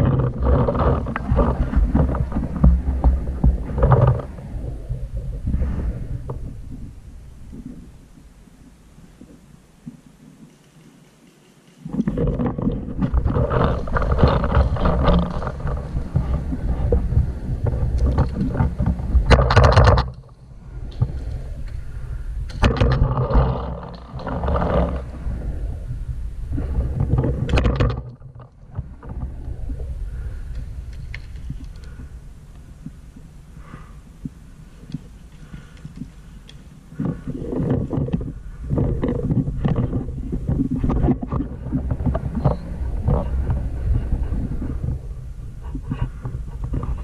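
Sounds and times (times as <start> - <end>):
rumbling wind on microphone: 0.0 - 10.5, 11.8 - 47.0
sharp clicks: 10.2 - 13.0.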